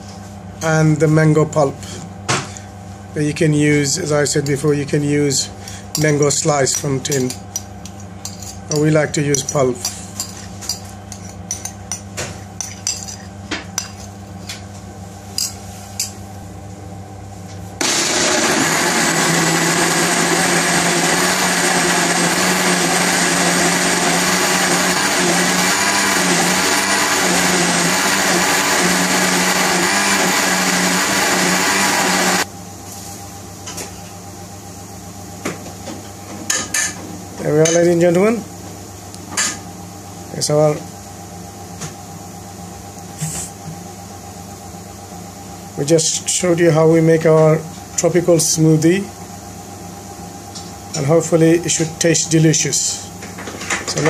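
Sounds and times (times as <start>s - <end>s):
blender running: 17.8s - 32.5s.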